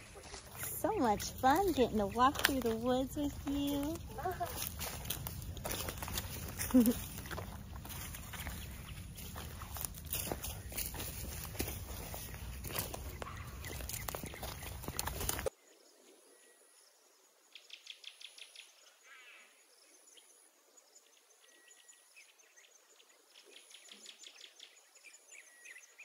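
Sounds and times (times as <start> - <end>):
footsteps on trail: 0.0 - 15.5
faint bird chirps: 12.0 - 26.0.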